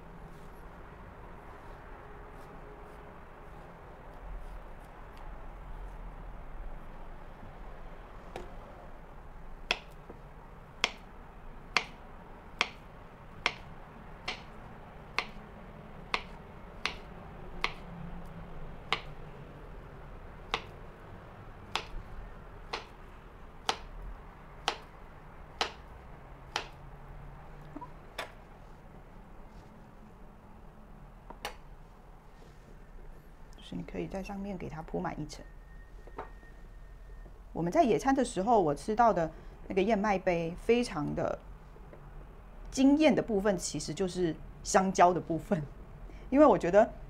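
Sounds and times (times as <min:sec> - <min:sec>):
knife tapping cutting board: 0:12.6 - 0:12.8, 0:13.4 - 0:13.6, 0:14.2 - 0:14.5, 0:15.2 - 0:15.4, 0:16.1 - 0:17.8, 0:22.7 - 0:22.9.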